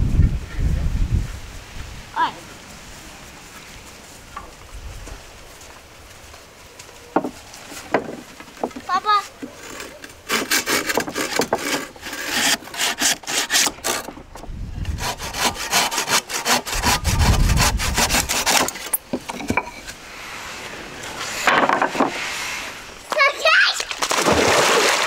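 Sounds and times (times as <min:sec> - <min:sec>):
handsaw cutting wood: 0:09.5 - 0:14.1, 0:14.8 - 0:19.0.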